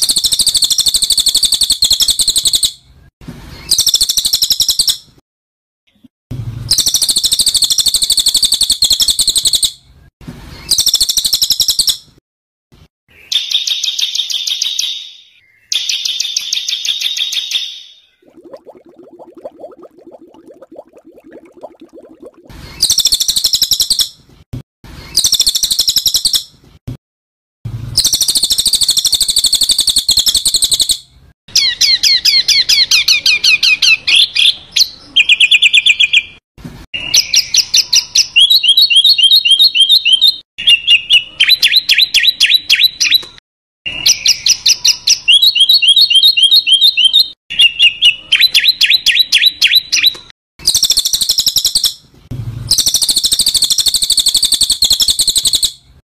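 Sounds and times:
songbird chattering song: 0.0s - 2.8s, 28.0s - 31.0s.

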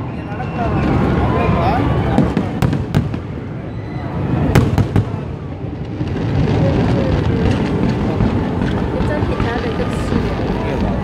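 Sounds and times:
low rumble of firework bursts: 0.0s - 11.0s
sharp firework bangs: 2.1s - 3.5s, 4.4s - 10.6s.

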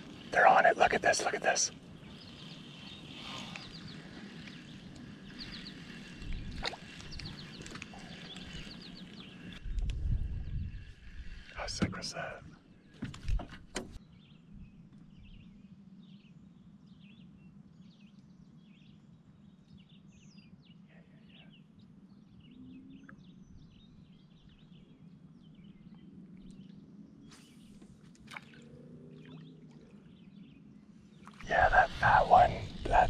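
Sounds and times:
birds chirping: 0.0s - 33.0s.

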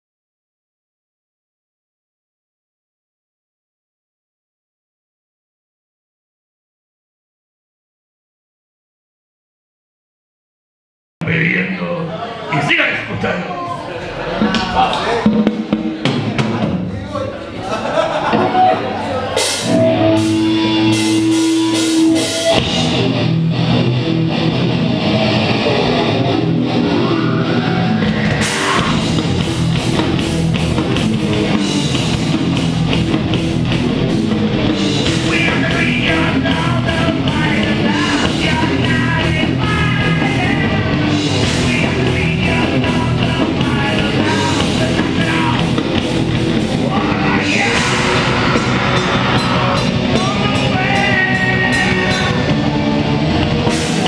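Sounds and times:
heavy rock band playing: 14.2s - 54.0s
person singing: 35.0s - 45.8s, 46.8s - 52.8s.

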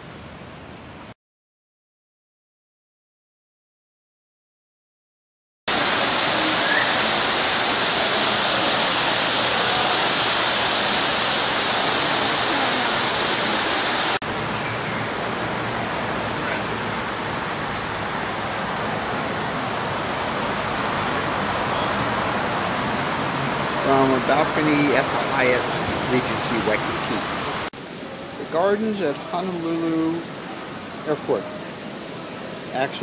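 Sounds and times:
street traffic rushing: 11.5s - 27.7s.

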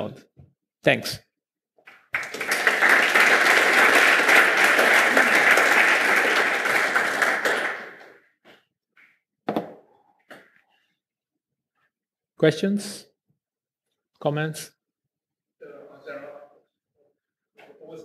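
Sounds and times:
audience applauding: 1.9s - 8.2s.

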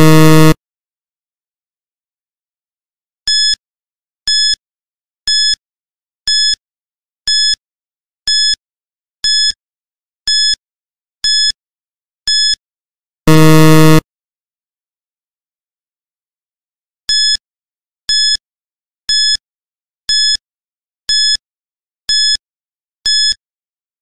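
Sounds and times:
low buzzer: 0.0s - 0.6s, 13.3s - 14.0s
short high electronic beeps: 0.0s - 0.6s, 13.3s - 14.0s.

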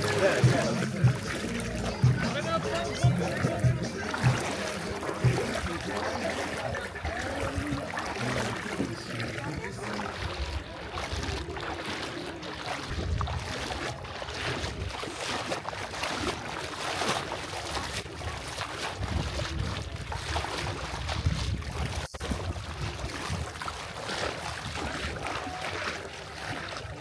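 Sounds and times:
rushing water: 0.0s - 27.0s
wind gusting on microphone: 18.9s - 23.7s.

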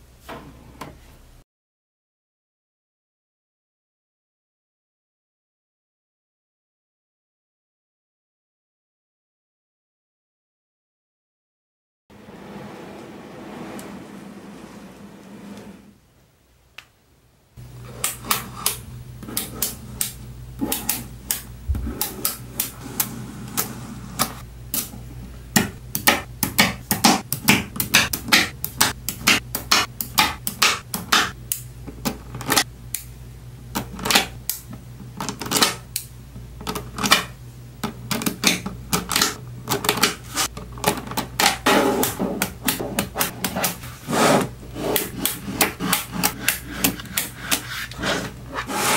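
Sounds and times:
steady low hum: 17.5s - 35.2s.

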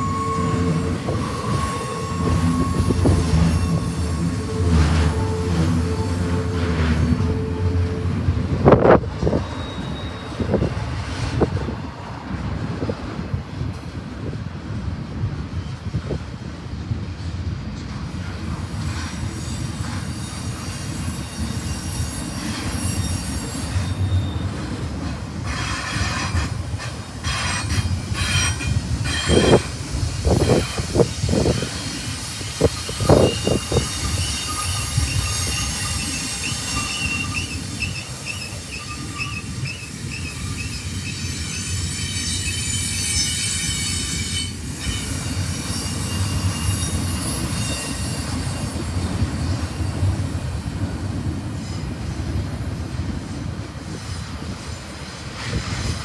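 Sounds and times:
thin wheel squeal: 0.0s - 7.4s, 9.2s - 10.6s, 18.9s - 24.6s, 30.3s - 50.1s
train wheels rumbling and clattering: 0.0s - 56.0s.

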